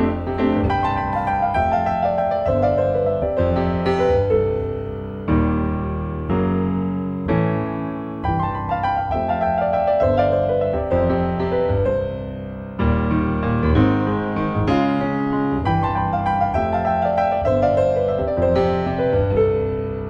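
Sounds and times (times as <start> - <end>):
slow piano piece: 0.0 - 20.0.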